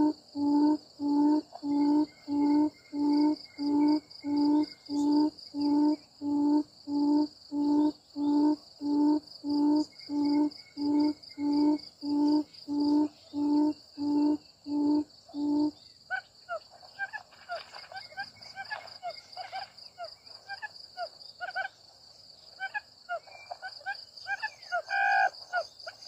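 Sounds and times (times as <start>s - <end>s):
quail call hooting: 0.0s - 17.2s, 22.6s - 25.6s
high insect trill: 0.0s - 26.0s.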